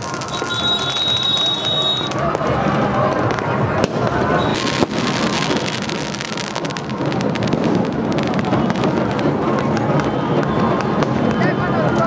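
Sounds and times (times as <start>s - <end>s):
crowd voices: 0.0s - 12.0s
firecrackers crackling: 0.0s - 12.0s.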